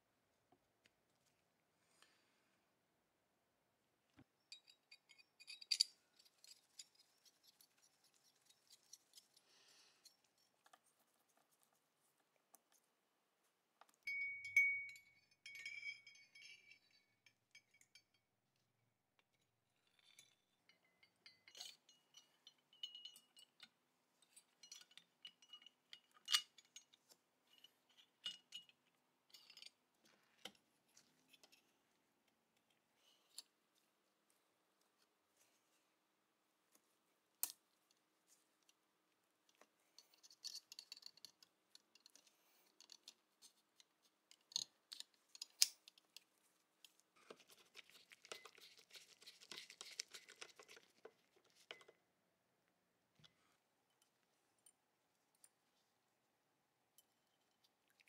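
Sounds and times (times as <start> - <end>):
ringing metallic clinks: 14.1 - 18.2, 20.7 - 23.5.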